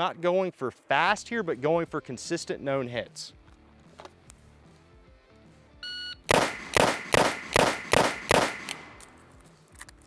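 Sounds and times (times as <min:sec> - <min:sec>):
revolver gunshots: 0:06.3 - 0:09.0.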